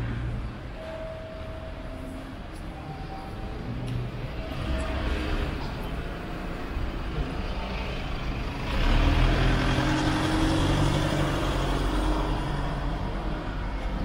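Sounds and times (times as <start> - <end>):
steady street hum: 0.0 - 14.0
van driving past: 4.4 - 14.0.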